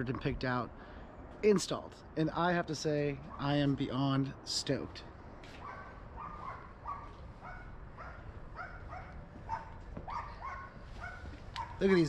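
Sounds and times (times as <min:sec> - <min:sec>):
dog whining in high yips: 0:05.6 - 0:11.8.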